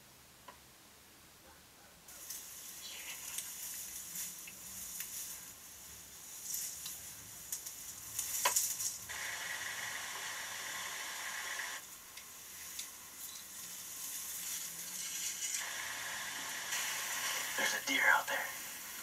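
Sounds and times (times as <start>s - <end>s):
crackling rustle and hiss: 2.0s - 19.0s.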